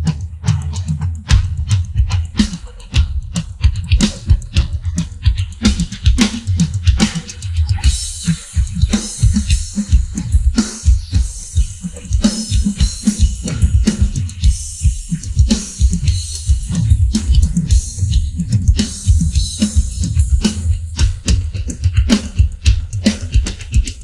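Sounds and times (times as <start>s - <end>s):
fast drum hits: 0.0s - 24.0s.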